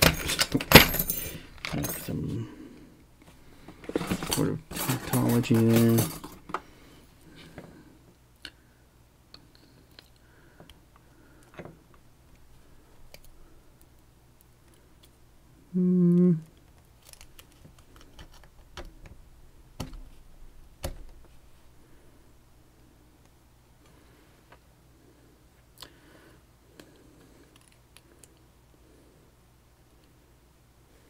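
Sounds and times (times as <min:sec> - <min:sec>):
person humming note: 0:15.7 - 0:16.5.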